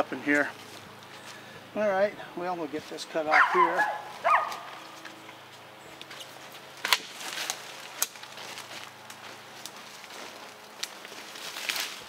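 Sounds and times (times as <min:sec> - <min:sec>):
twigs snapping: 0:06.0 - 0:12.0
rustling in leaf litter: 0:06.1 - 0:12.0.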